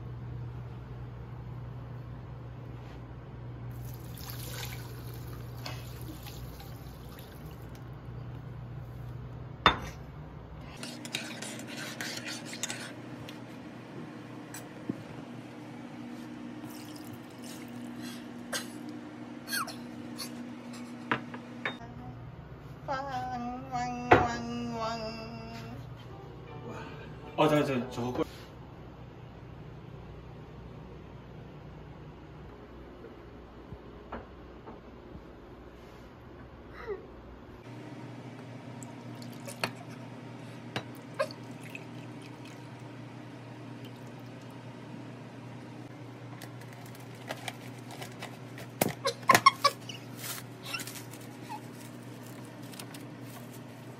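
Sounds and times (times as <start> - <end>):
liquid pouring and splashing: 3.7 - 7.8, 16.6 - 18.0, 38.9 - 40.0, 41.0 - 42.9, 43.8 - 44.6.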